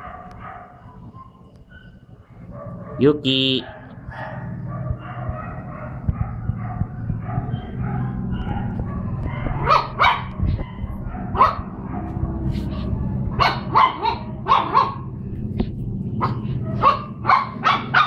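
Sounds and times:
puppies yapping: 0:03.6 - 0:15.2, 0:16.2 - 0:18.0
steady low hum: 0:03.7 - 0:18.0.

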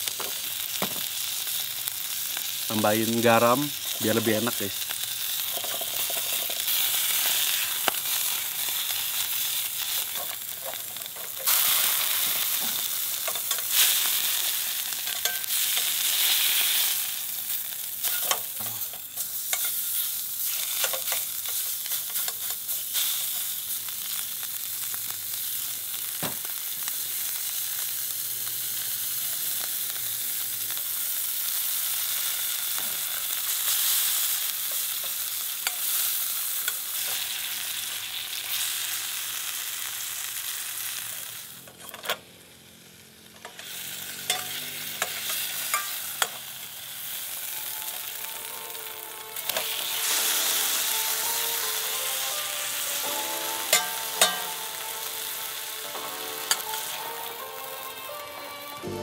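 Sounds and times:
steak sizzling in pan: 0:00.0 - 0:41.8, 0:42.5 - 0:59.0
metal utensil scraping pan: 0:05.2 - 0:16.9, 0:18.0 - 0:23.4, 0:43.4 - 0:46.5, 0:53.5 - 0:54.8.

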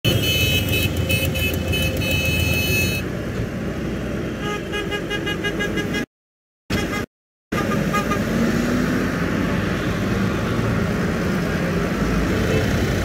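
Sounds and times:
tractor horns honking: 0:00.0 - 0:03.1, 0:04.4 - 0:06.1, 0:06.7 - 0:08.3.

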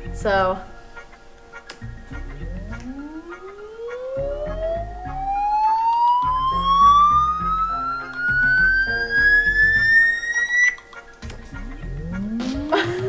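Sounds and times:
music: 0:00.0 - 0:13.0
rising siren-like tone: 0:02.4 - 0:10.8.

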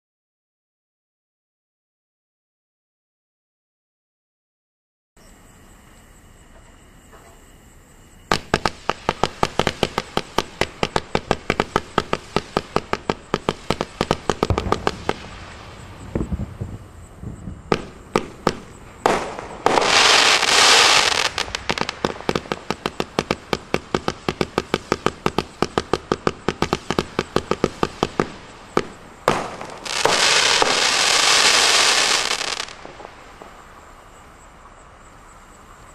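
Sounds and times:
loud fireworks hissing: 0:05.3 - 0:35.9
fireworks launch pops: 0:08.3 - 0:33.8.

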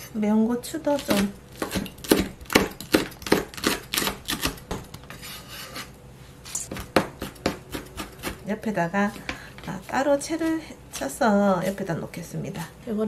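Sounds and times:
knife chopping on plastic board: 0:01.0 - 0:05.1, 0:06.7 - 0:08.5.

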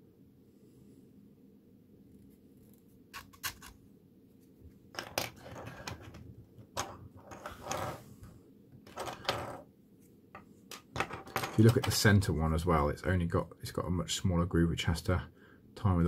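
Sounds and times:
plastic pieces scraping: 0:05.0 - 0:06.2.

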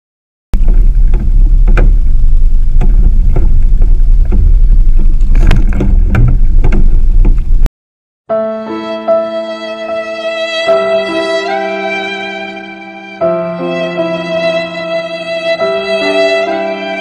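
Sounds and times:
sharp knocks and slaps: 0:00.6 - 0:07.7
wind buffeting microphone: 0:00.6 - 0:07.7.

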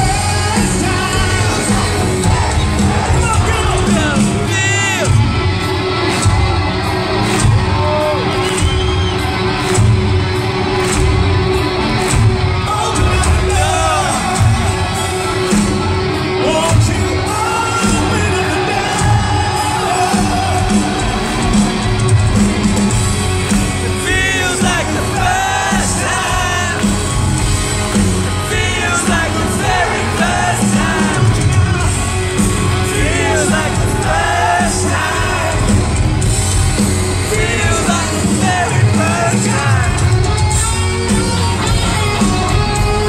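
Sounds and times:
lead singer's vocal: 0:00.0 - 0:05.2, 0:12.6 - 0:21.4, 0:23.8 - 0:27.3, 0:28.1 - 0:36.0, 0:37.0 - 0:40.3
live rock band playing: 0:00.0 - 0:43.0.

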